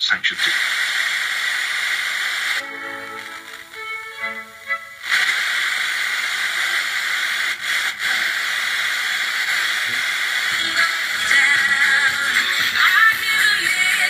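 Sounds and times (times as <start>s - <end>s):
radio station sound: 0.0s - 6.9s, 7.6s - 14.0s
radio static hiss: 0.0s - 14.0s.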